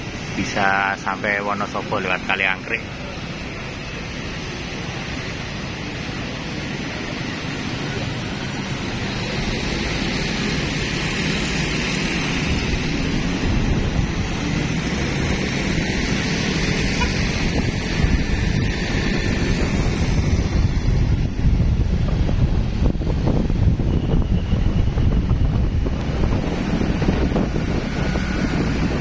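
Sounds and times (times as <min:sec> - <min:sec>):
vehicle running: 0:00.0 - 0:29.0
wind buffeting microphone: 0:07.3 - 0:29.0.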